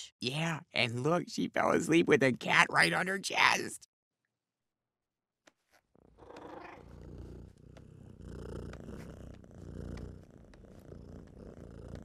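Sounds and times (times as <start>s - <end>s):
cat purring: 6.0s - 12.0s.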